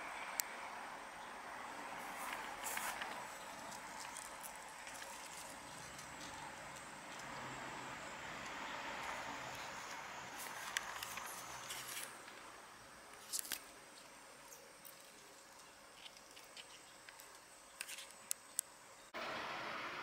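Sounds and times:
loud steady hiss: 0.0s - 15.9s
faint steady hiss: 0.0s - 20.0s
leaves rustling against camera: 1.9s - 18.6s.

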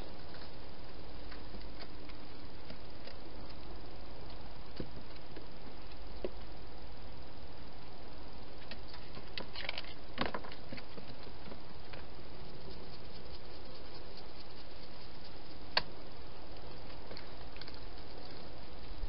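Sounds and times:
steady hiss: 0.0s - 19.0s
small clicks and crackles: 8.6s - 15.9s, 16.5s - 19.0s.

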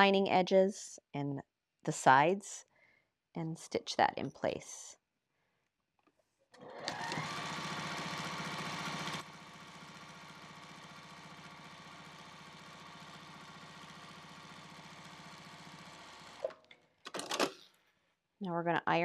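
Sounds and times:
sewing machine stitching: 6.6s - 17.6s.

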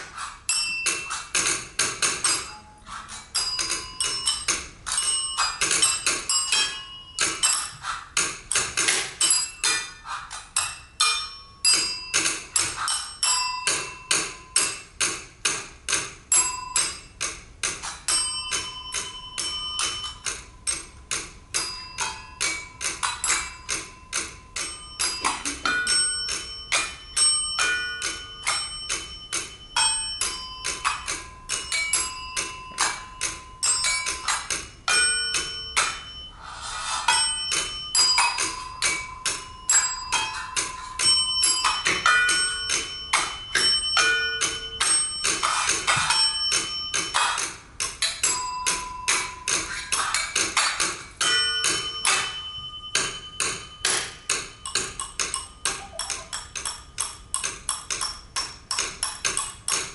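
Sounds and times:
service bells dinging: 0.5s - 1.2s, 2.2s - 7.8s, 10.9s - 14.7s, 16.3s - 17.2s, 18.1s - 21.0s, 21.6s - 36.5s, 37.1s - 47.5s, 48.2s - 49.6s, 51.2s - 57.0s.

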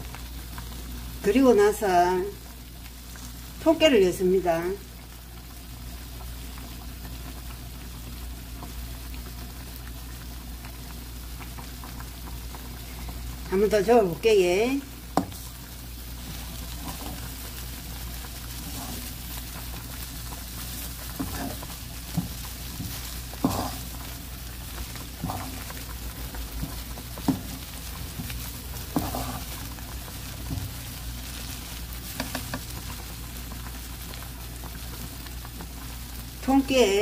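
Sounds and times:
fish sizzling in a pan: 0.0s - 37.0s
utensil scraping and clicking on pan: 16.3s - 17.3s, 21.2s - 24.1s, 26.6s - 29.6s, 32.0s - 32.7s.

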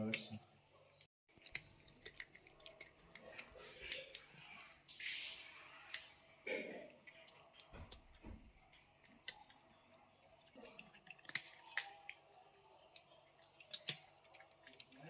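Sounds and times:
cats crunching dry kibble: 1.3s - 4.5s, 7.0s - 15.0s.

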